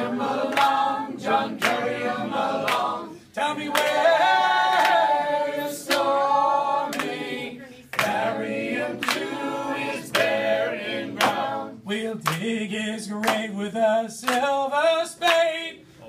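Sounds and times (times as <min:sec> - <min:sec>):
group singing in close harmony: 0:00.0 - 0:12.8
hand claps keeping time: 0:00.5 - 0:00.9, 0:01.5 - 0:02.9, 0:03.7 - 0:04.1, 0:04.7 - 0:05.2, 0:06.9 - 0:07.2, 0:07.9 - 0:09.4, 0:12.2 - 0:12.5, 0:13.2 - 0:13.5, 0:14.2 - 0:14.5.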